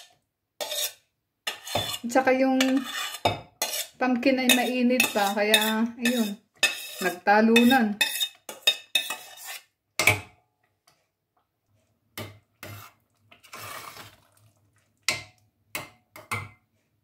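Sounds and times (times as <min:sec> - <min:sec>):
metal spoon clinking on saucepan: 0:04.5 - 0:07.0, 0:07.6 - 0:09.3.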